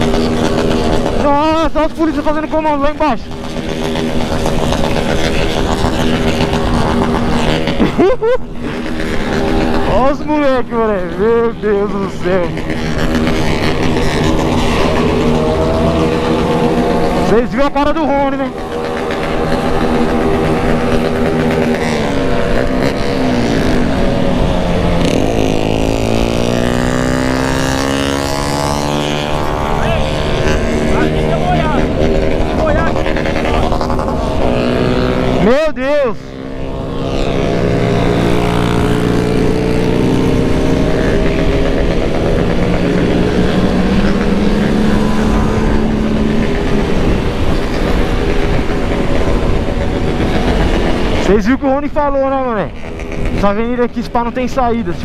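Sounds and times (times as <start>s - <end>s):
motorcycle engine cruising: 0.0s - 55.0s
other motorcycles: 0.0s - 55.0s
wind rushing over microphone: 2.9s - 55.0s
wind rush on microphone: 36.8s - 51.3s.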